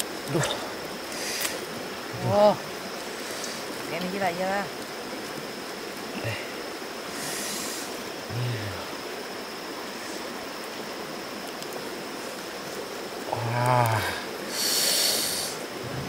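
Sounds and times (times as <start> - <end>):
stream water running: 0.0 - 16.0
short low vocal sound: 8.3 - 8.9.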